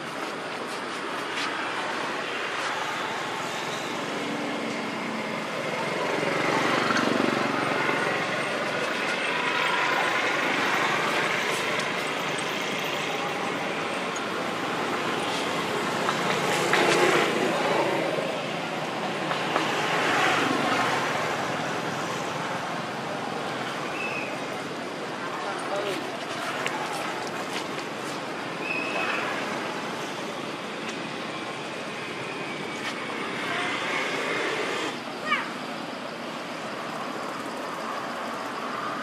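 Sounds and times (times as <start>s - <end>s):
outdoor background noise: 0.0s - 39.0s
faint voices: 6.8s - 31.7s.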